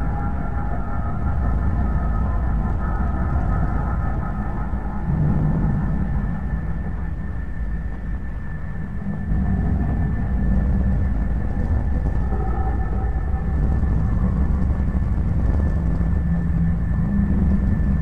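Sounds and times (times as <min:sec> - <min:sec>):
low drone rumble: 0:00.0 - 0:18.0.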